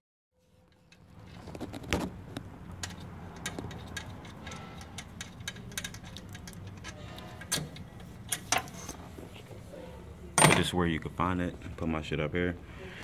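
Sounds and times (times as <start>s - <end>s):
hand ratchet clicking: 2.8s - 7.6s.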